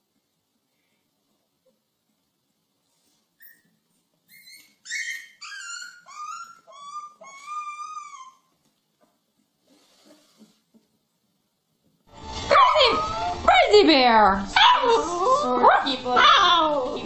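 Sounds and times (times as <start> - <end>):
puppy howling: 5.2 - 8.5, 14.5 - 17.0.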